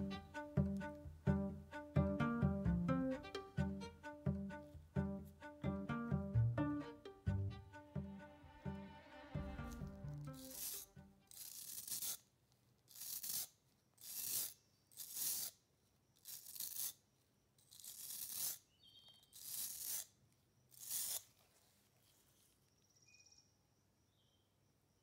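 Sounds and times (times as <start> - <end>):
abrasive block scraping knife blade: 9.4 - 12.2.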